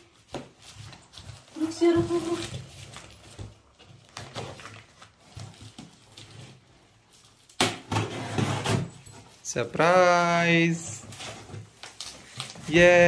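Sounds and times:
cardboard scraping and rustling: 0.2 - 9.3.

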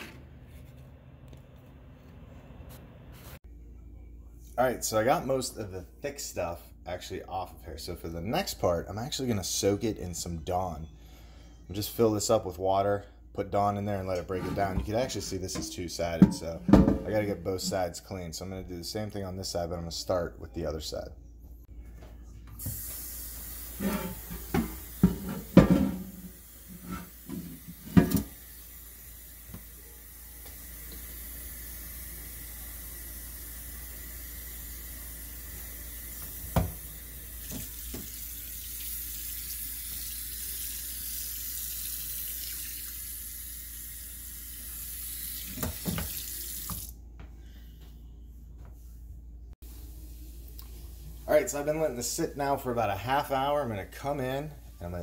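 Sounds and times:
faucet running into sink: 36.0 - 46.9.

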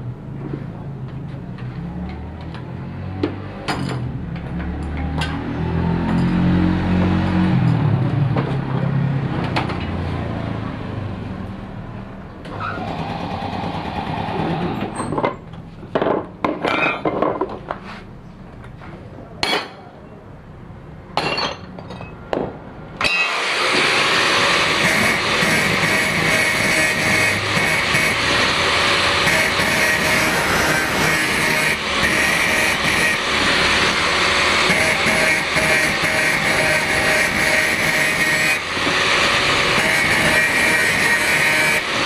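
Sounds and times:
sharp knocks and clinks: 21.2 - 22.6
engine running: 23.0 - 42.0.

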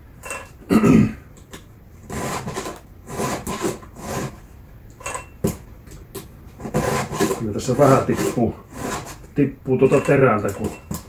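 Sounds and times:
file rasping on chainsaw chain: 6.6 - 9.3.

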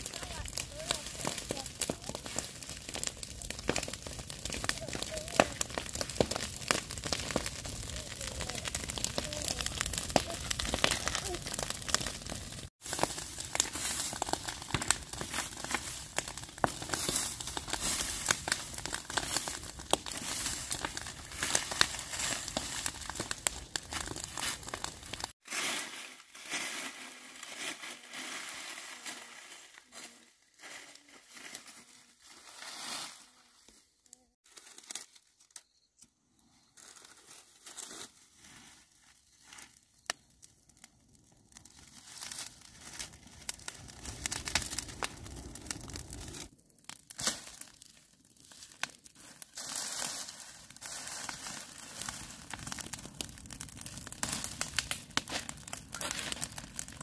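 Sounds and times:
dry grass rustling and crunching: 0.0 - 33.8, 34.4 - 35.5, 36.8 - 40.3, 41.6 - 46.5, 47.1 - 57.0.

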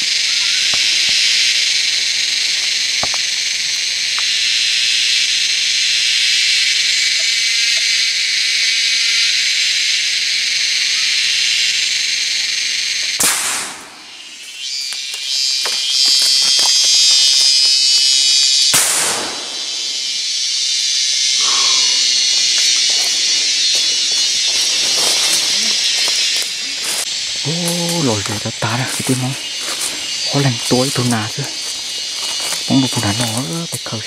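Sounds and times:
insect chorus buzzing: 0.0 - 34.0
sharp crack: 13.2 - 14.1, 18.7 - 19.8.

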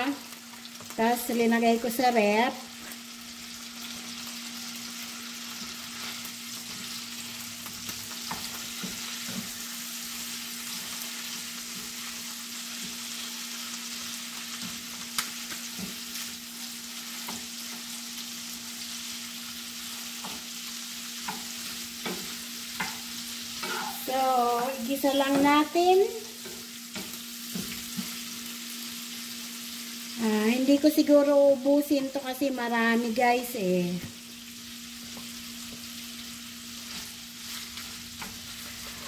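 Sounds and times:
pork sizzling in a pan: 0.0 - 39.0
wooden spatula scraping a pan: 21.2 - 25.8, 36.8 - 39.0.

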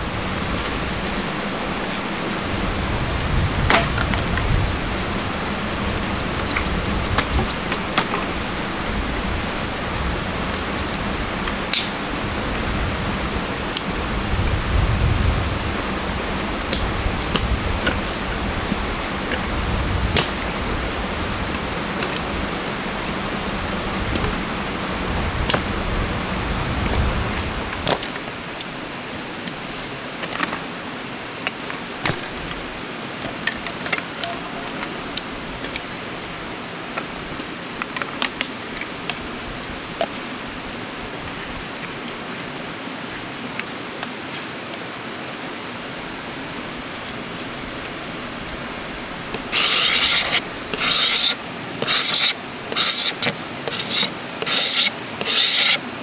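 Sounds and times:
low rumble: 0.0 - 11.4
stream water rushing: 0.0 - 56.0.

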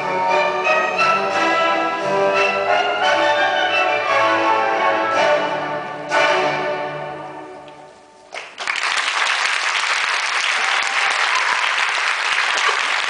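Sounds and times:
audience applause: 8.3 - 13.0.

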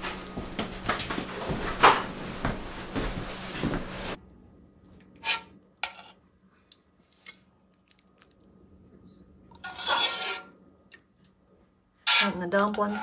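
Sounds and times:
metal spoon scraping a steel pot: 5.2 - 6.2, 9.6 - 10.6, 12.0 - 13.0.

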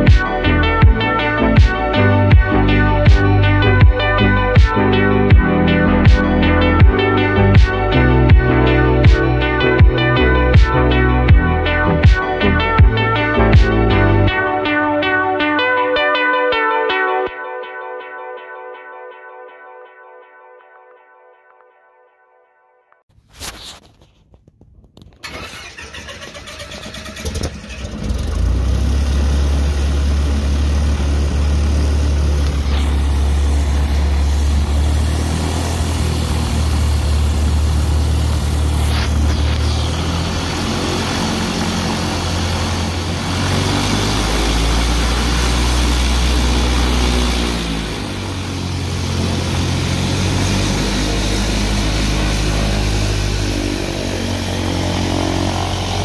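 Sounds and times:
airplane piston engine starting and running: 25.2 - 56.0.

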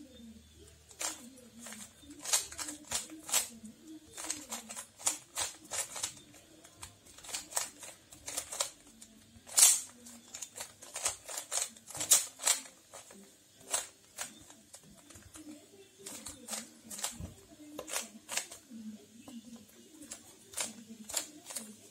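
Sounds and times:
puzzle cube layers clicking: 0.9 - 3.5, 4.1 - 15.5.

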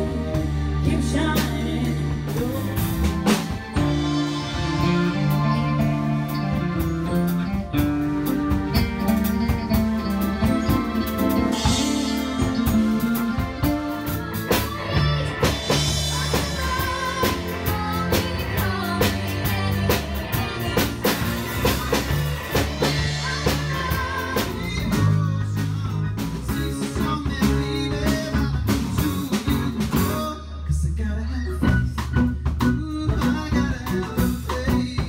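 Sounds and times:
women singing with vibrato: 0.0 - 5.0, 11.5 - 25.7
drum kit beat: 0.0 - 30.4, 31.6 - 35.0
electric bass: 0.0 - 35.0
electric guitar: 0.0 - 35.0
keyboards: 0.0 - 35.0.

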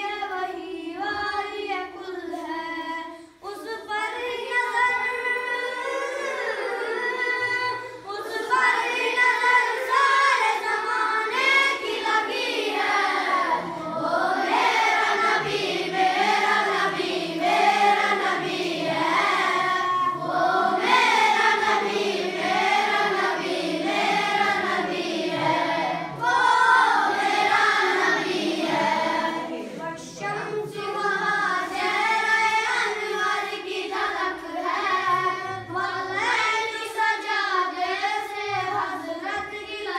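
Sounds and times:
boy singing unaccompanied: 0.0 - 16.9, 29.5 - 39.9.

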